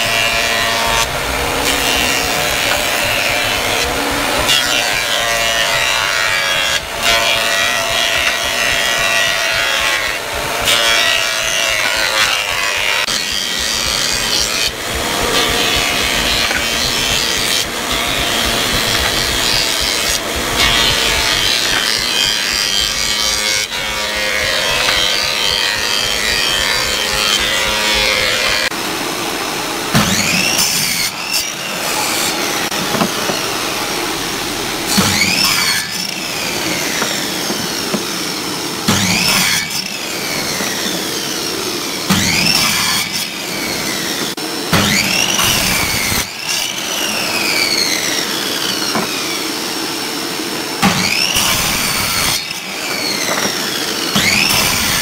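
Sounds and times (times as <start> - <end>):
miter saw crosscutting wood: 0.0 - 55.0
thickness planer running: 0.0 - 55.0.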